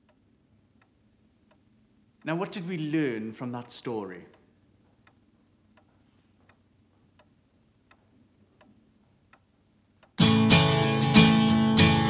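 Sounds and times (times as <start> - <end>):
faint clock-like ticking: 0.0 - 10.2
strummed guitar music: 10.2 - 12.0.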